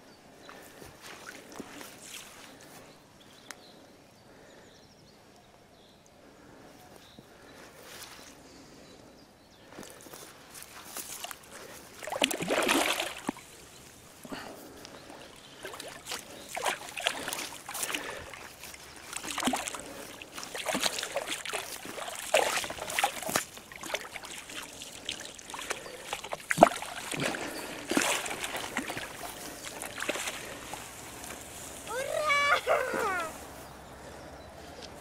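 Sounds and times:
fish thrashing and splashing: 0:11.2 - 0:13.6, 0:15.1 - 0:32.4.

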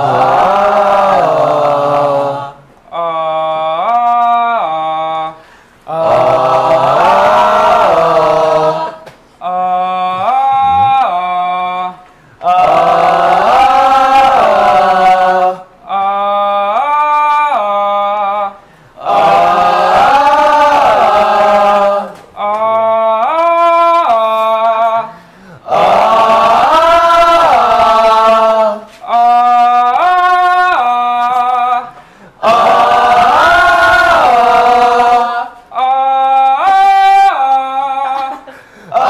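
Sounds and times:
group of voices singing back: 0:00.0 - 0:39.0
man singing vocal phrase: 0:09.5 - 0:12.6.

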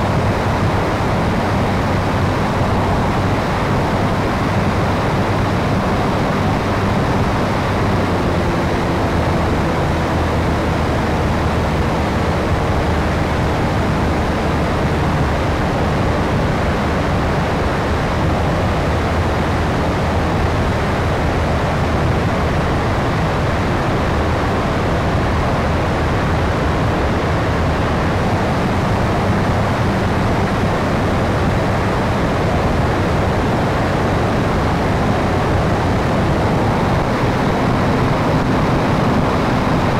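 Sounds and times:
wind and propeller rush: 0:00.0 - 0:39.9.

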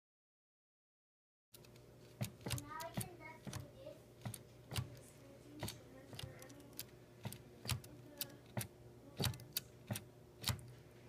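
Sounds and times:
typewriter mechanism clicking: 0:05.6 - 0:10.7.

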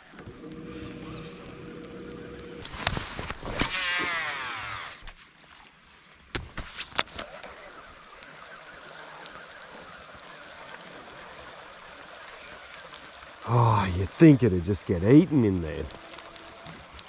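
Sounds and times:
fishing reel whirring: 0:00.1 - 0:05.2.

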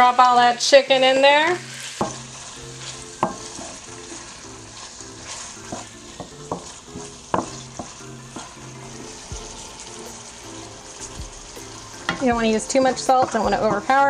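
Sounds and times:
chicken sizzling in a frying pan: 0:00.0 - 0:14.0
wooden spoon knocking on pan: 0:02.0 - 0:02.3, 0:03.2 - 0:03.8, 0:05.6 - 0:08.6, 0:11.1 - 0:14.0.

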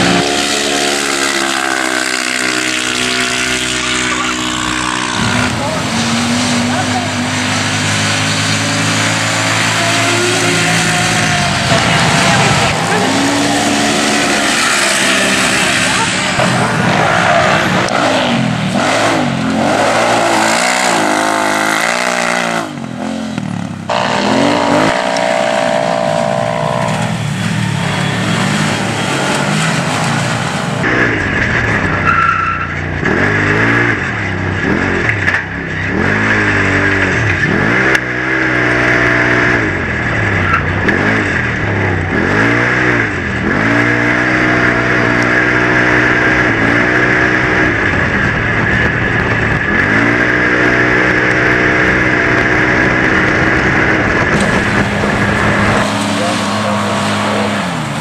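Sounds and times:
race engines revving: 0:00.0 - 0:58.0.

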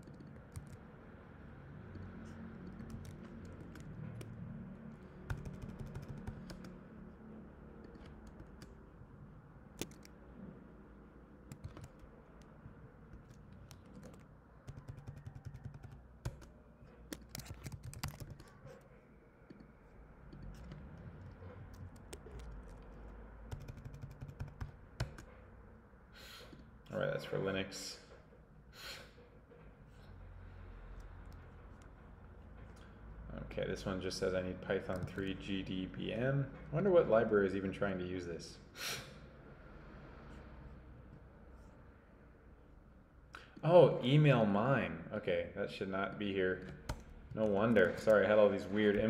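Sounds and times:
faint typing on keyboard: 0:00.0 - 0:01.0, 0:01.8 - 0:09.0, 0:09.7 - 0:10.2, 0:11.3 - 0:25.4, 0:34.6 - 0:35.5, 0:46.6 - 0:49.0.

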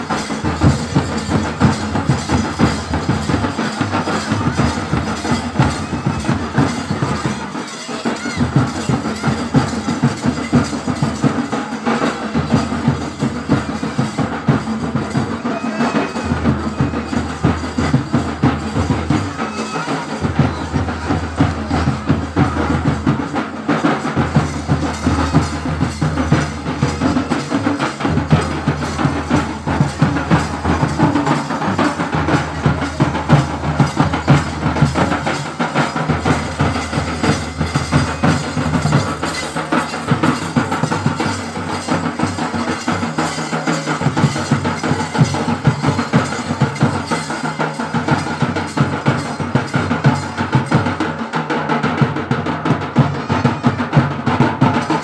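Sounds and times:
drum-led music: 0:00.0 - 0:55.0.

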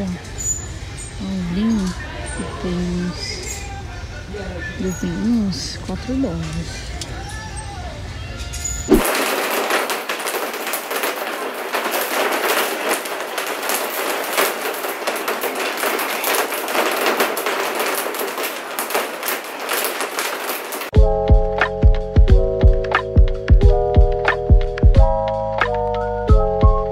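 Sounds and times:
heavy rain on window and roof: 0:08.9 - 0:21.0.

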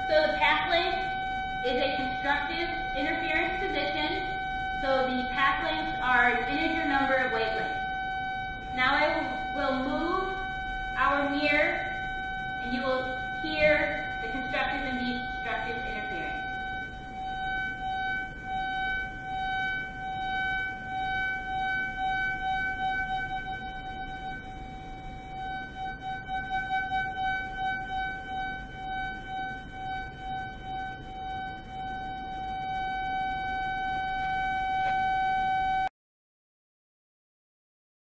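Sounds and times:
steady pitched tone: 0:00.0 - 0:35.9.

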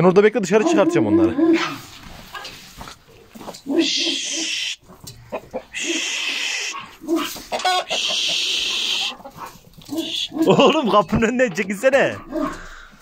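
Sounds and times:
chickens clucking and squawking: 0:00.4 - 0:13.0
person hissing shhh: 0:05.8 - 0:06.8.

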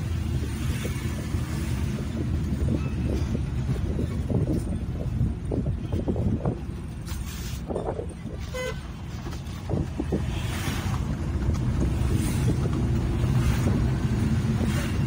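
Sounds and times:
road rumble: 0:00.0 - 0:15.0
short horn toot: 0:08.4 - 0:08.9.

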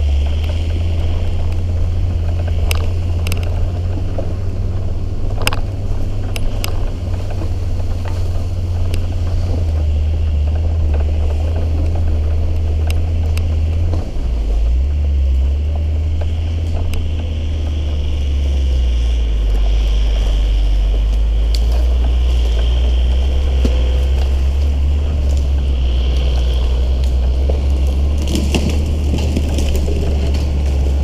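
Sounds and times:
knocks and rattles from bumps: 0:00.0 - 0:31.0
off-road vehicle engine drone: 0:00.0 - 0:31.0
tyre and body rumble: 0:00.0 - 0:31.0.

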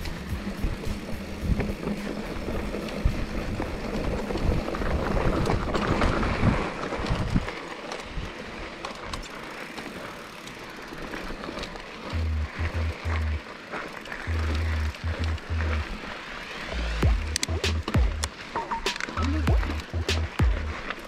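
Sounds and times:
wind buffeting microphone: 0:00.0 - 0:08.4
bike rattling over bumps: 0:00.0 - 0:21.0
scattered clicks: 0:14.0 - 0:15.9, 0:16.7 - 0:21.0.

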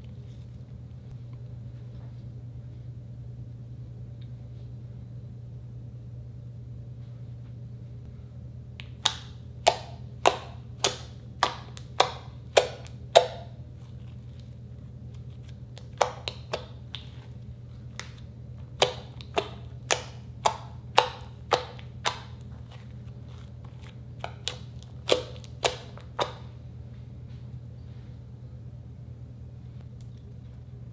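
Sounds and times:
low steady hum: 0:00.0 - 0:30.9
slime popping: 0:08.8 - 0:14.5, 0:15.1 - 0:17.3, 0:17.9 - 0:26.4.

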